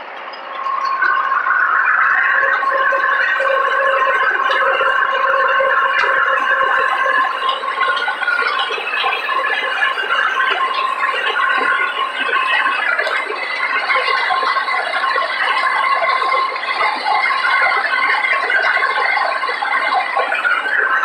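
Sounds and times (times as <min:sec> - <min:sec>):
steady high machine tones: 0:00.0 - 0:21.0.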